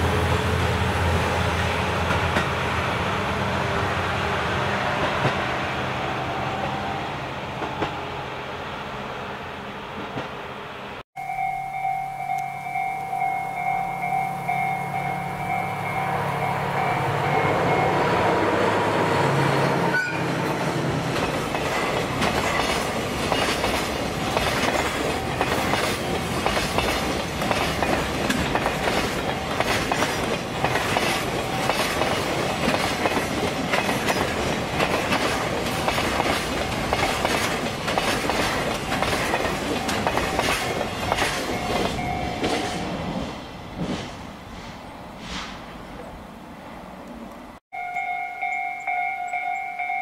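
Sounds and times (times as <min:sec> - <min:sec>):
diesel locomotive engine: 0:00.0 - 0:50.0
train wheels clacking over rail joints: 0:21.1 - 0:42.9.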